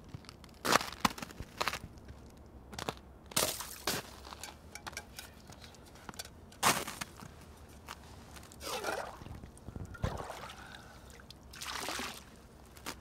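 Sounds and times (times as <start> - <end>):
footsteps crunching on gravel and snow: 0.0 - 4.5.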